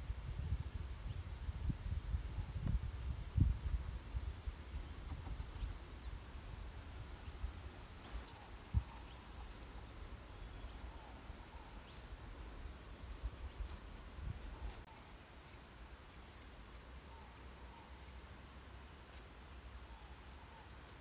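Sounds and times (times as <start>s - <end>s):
small birds chirping: 0.4s - 21.0s.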